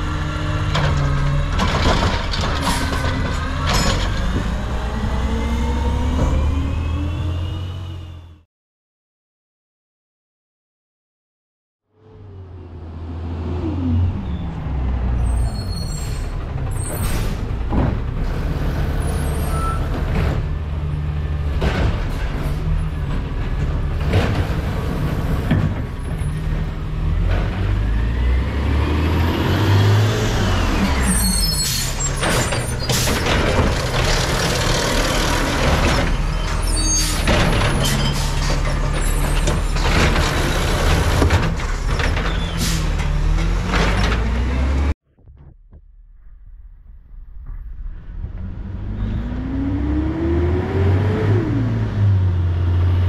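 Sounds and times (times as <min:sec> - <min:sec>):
garbage truck diesel engine: 0:00.0 - 0:08.4, 0:12.0 - 0:45.0.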